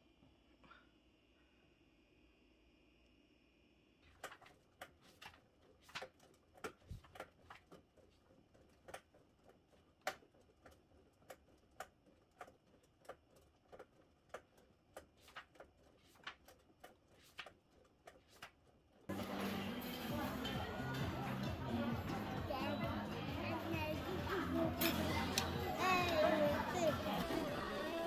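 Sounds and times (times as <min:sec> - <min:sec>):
exercise bike clicking: 0:04.1 - 0:22.9.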